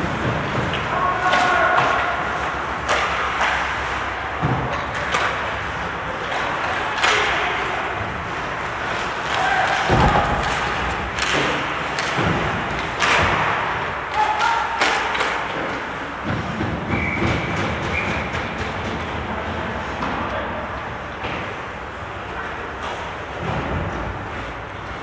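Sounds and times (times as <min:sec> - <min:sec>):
skate blades scraping ice: 0:00.0 - 0:14.0
hockey sticks and puck knocking: 0:00.0 - 0:21.8.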